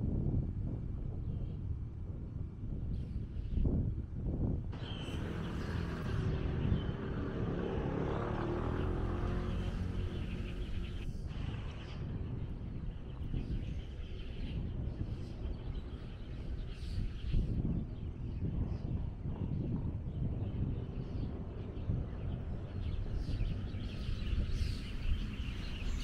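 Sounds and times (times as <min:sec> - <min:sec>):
low traffic rumble: 0:03.9 - 0:26.0
vehicle passing: 0:04.8 - 0:12.5.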